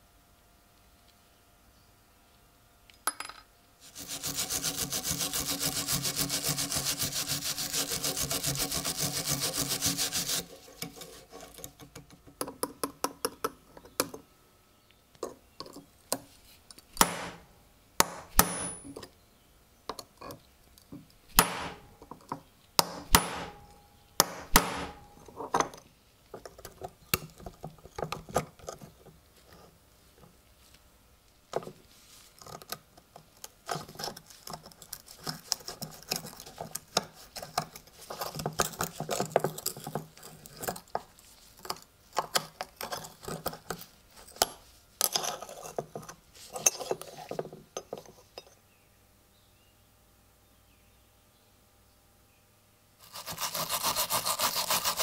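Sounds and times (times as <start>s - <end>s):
small metal clicks and scraping: 10.6s - 12.6s, 32.3s - 48.6s
hammer striking steel punch: 17.0s - 17.4s, 18.0s - 19.0s, 21.4s - 21.9s, 22.8s - 25.2s.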